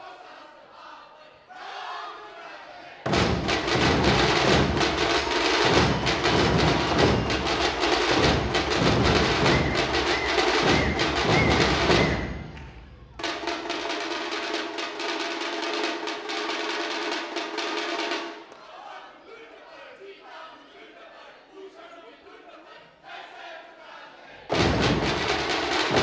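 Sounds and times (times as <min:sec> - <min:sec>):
barrel drums and small drums: 0:03.1 - 0:18.4, 0:24.5 - 0:26.0.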